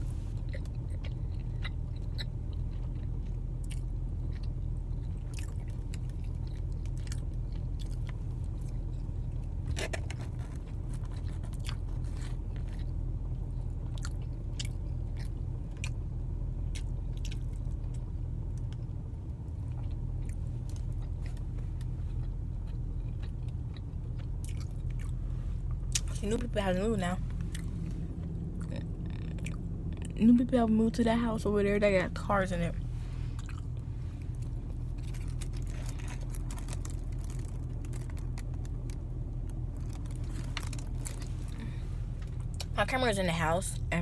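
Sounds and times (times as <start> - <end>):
person chewing and biting food: 0.0 - 13.0, 13.8 - 16.0, 16.7 - 18.0, 19.6 - 26.2, 27.3 - 30.2, 33.3 - 42.7
car cabin rumble: 0.0 - 44.0.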